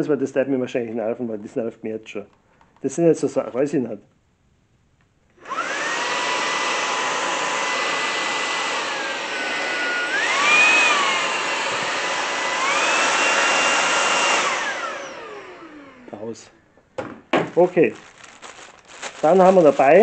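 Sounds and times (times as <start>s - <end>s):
stick vacuum running: 5.4s - 16.3s.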